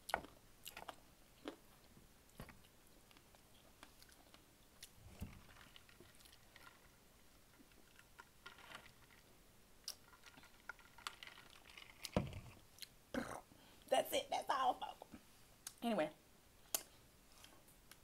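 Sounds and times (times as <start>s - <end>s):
chewing and mouth clicks: 0.0s - 1.9s, 2.6s - 5.0s.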